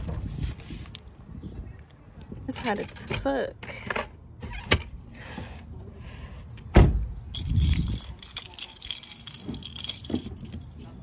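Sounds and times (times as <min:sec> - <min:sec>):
door slamming shut: 0:06.7 - 0:07.1
keys jangling: 0:07.3 - 0:11.0.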